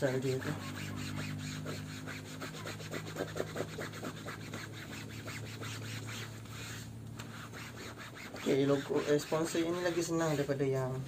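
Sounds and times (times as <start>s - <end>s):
steady low hum: 0.0s - 11.0s
hands scrubbing soapy fabric: 0.2s - 10.6s.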